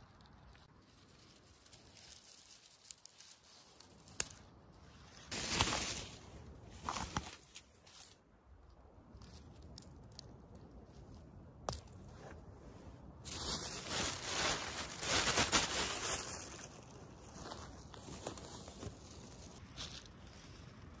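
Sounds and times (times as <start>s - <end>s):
rustling in dry leaves: 0.0s - 8.2s, 13.2s - 21.0s.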